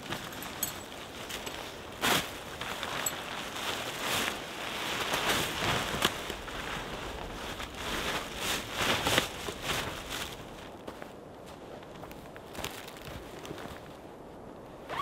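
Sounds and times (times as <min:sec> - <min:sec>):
plastic groundsheet crinkling: 0:00.0 - 0:10.7
tent fabric rustling: 0:00.0 - 0:14.1.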